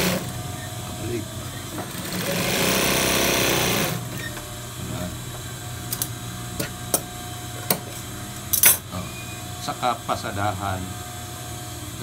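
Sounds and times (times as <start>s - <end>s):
steady machine hum: 0.0s - 12.0s
sewing machine stitching: 1.8s - 4.1s.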